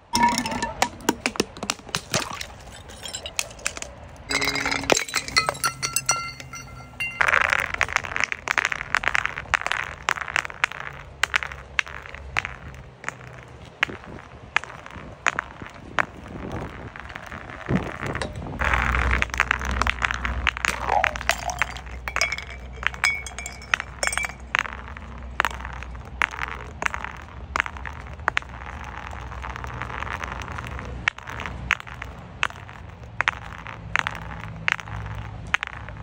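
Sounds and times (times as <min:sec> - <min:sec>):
glass clinking on concrete: 0:00.0 - 0:01.2, 0:02.2 - 0:08.3, 0:20.6 - 0:25.8
ringing glass clink: 0:04.3 - 0:07.4.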